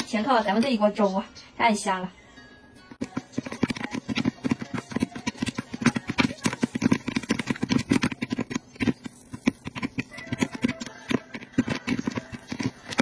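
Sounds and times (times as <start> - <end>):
popcorn kernels popping: 3.0 - 13.0.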